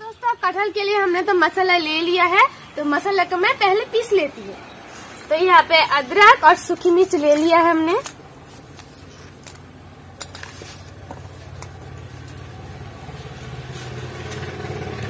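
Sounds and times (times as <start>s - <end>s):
vehicle engine approaching: 10.0s - 15.0s.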